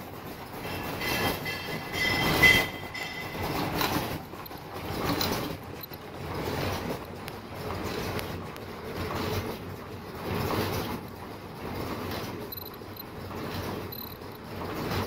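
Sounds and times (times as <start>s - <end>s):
mask making machine clatter: 0.0s - 15.0s
high-pitched machine squeal: 0.6s - 4.2s.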